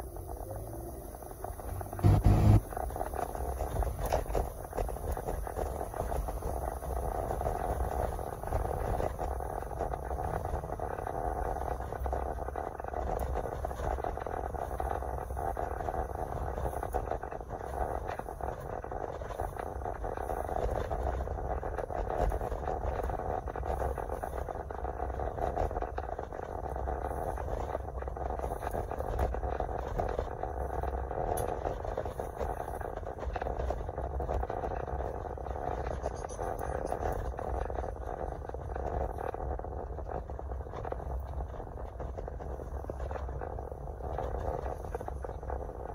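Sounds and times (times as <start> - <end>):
tyre noise: 0.0 - 9.0
car engine: 0.0 - 13.8.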